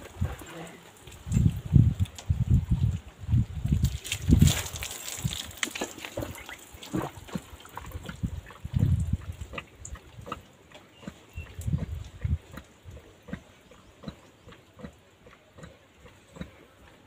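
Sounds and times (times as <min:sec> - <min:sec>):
hose water splashing: 0:00.0 - 0:10.4
horse drinking with slurps: 0:00.0 - 0:17.0.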